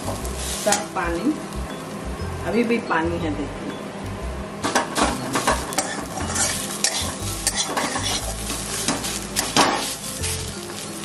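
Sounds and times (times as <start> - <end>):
steady sizzle: 0.0 - 11.0
spatula scraping metal pan: 5.5 - 10.0.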